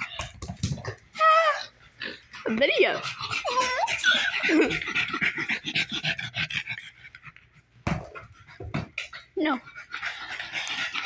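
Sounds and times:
dog vocalizing: 1.2 - 7.4
dog panting: 2.0 - 11.0.

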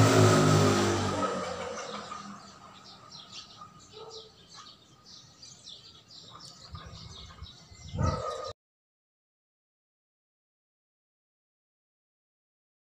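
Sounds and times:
small birds chirping: 1.4 - 8.6.

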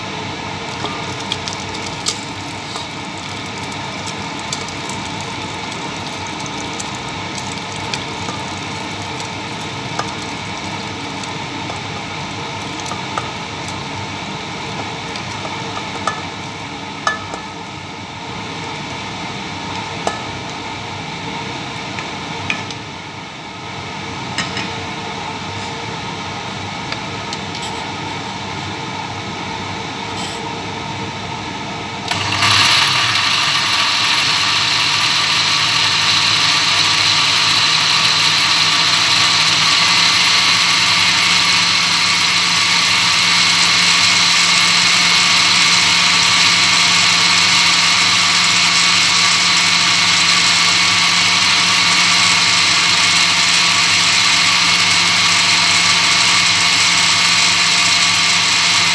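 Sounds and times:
blender running: 0.7 - 16.7, 32.1 - 58.9.

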